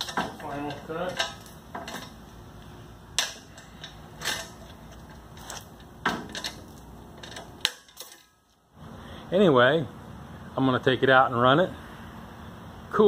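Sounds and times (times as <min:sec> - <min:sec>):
metallic clanks and knocks: 0:00.0 - 0:02.2, 0:03.2 - 0:08.5
steady background hiss: 0:00.0 - 0:13.0.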